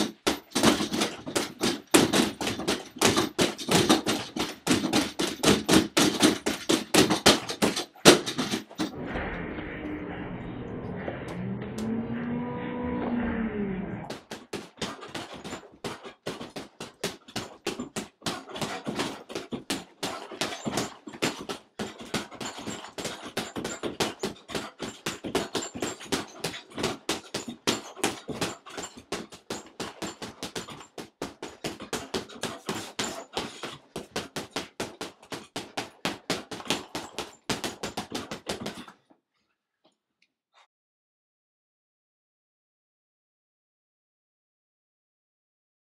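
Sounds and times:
sharp knocks: 0.0 - 8.9, 14.1 - 38.9.

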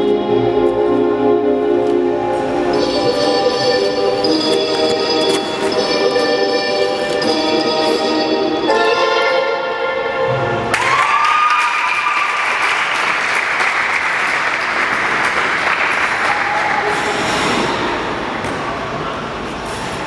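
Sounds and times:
audience applauding: 10.7 - 17.0.

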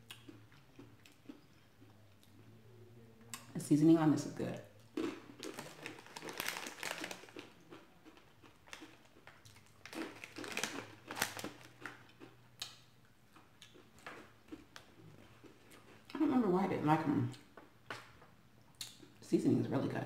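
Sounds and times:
crunchy chips being chewed: 0.0 - 2.4, 4.8 - 16.2
snack bag rustling: 4.9 - 12.3.

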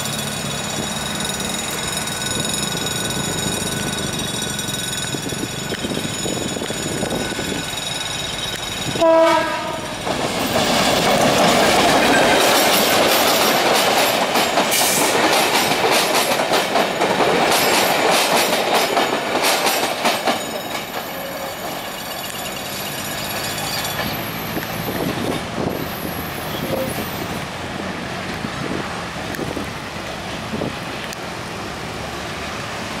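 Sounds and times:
diesel locomotive engine running: 0.0 - 20.2
train wheels clattering over rail joints: 0.0 - 27.4
train horn blast: 9.0 - 10.0.

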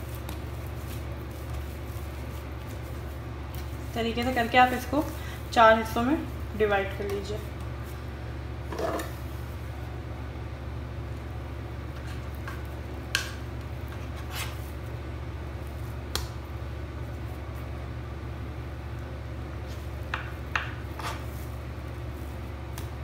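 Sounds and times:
steady low hum: 0.0 - 23.0
knife cutting through dough: 13.9 - 14.7, 20.6 - 21.5
knife tapping marble countertop: 20.1 - 20.8.

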